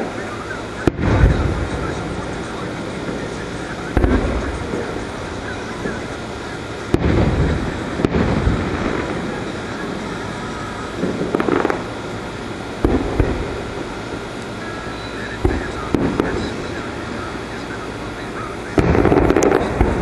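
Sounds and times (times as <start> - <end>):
firework shells booming: 0.0 - 20.0.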